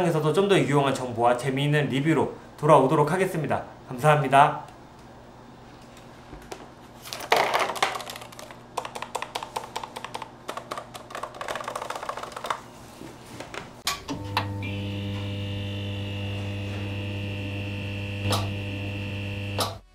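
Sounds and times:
typing on mechanical keyboard: 7.9s - 12.6s.

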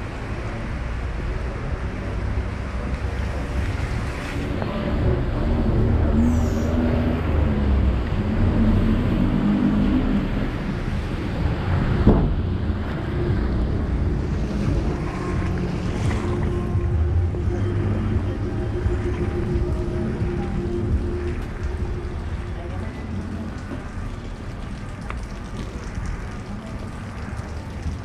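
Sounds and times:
traffic rumble: 0.0s - 28.0s
wind buffeting microphone: 1.4s - 28.0s.

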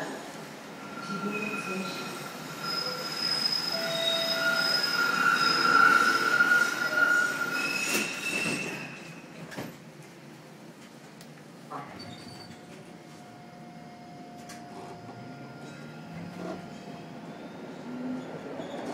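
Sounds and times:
streetcar wheels squealing: 0.8s - 9.2s, 15.6s - 18.9s.

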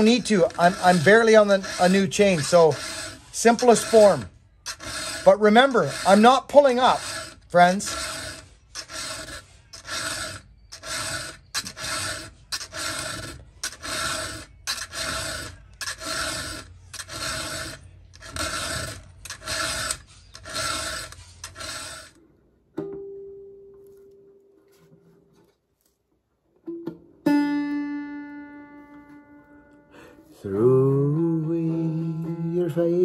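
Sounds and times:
file rasping on metal: 0.0s - 22.2s.

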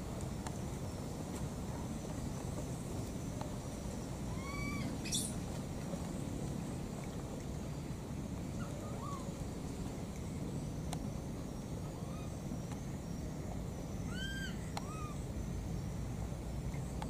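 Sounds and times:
baby monkey calling: 4.3s - 5.4s, 14.1s - 15.2s.

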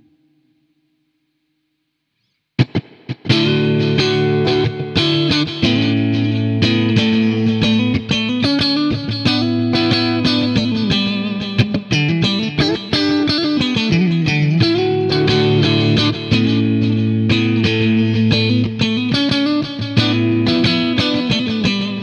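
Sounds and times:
electric guitar notes and chords: 2.6s - 22.0s.

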